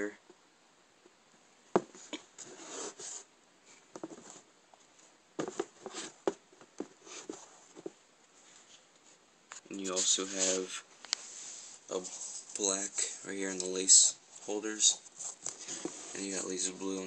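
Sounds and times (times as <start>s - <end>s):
rubs scrapes and taps: 3.9s - 4.4s, 5.4s - 11.3s.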